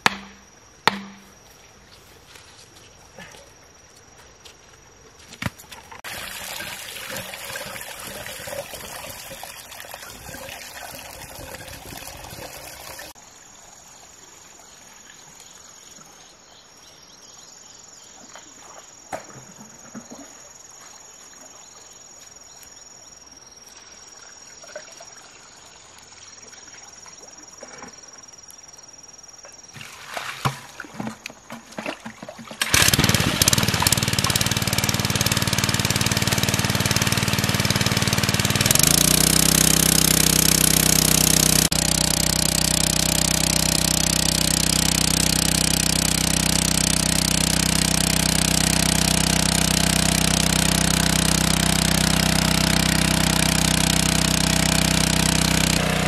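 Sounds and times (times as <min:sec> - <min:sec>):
engine-driven water pump: 0:06.0 - 0:13.2, 0:29.8 - 0:56.0
water gushing from pipe: 0:06.0 - 0:13.2, 0:32.1 - 0:56.0
water splashing: 0:06.0 - 0:13.2, 0:29.8 - 0:56.0.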